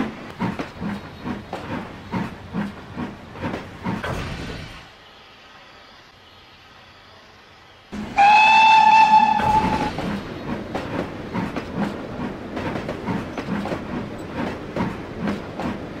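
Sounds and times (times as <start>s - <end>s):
steam locomotive chuffing: 0.0s - 4.9s, 8.0s - 16.0s
steam locomotive whistle: 8.0s - 10.1s.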